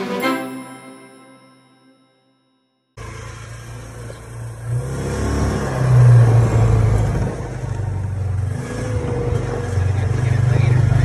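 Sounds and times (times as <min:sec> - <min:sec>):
utility vehicle engine running: 0:03.0 - 0:11.0.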